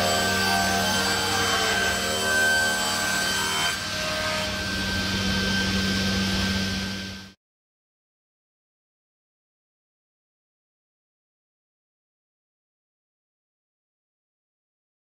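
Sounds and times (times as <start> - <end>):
circular saw motor hum: 0.0 - 7.4
saw blade whine cutting wood: 0.0 - 7.4.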